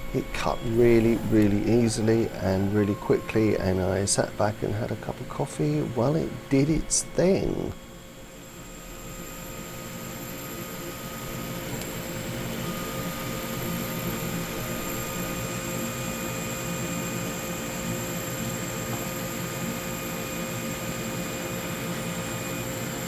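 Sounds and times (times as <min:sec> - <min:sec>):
thin whining tones: 0:00.0 - 0:07.7
laser cutter mechanical drone: 0:00.0 - 0:23.0.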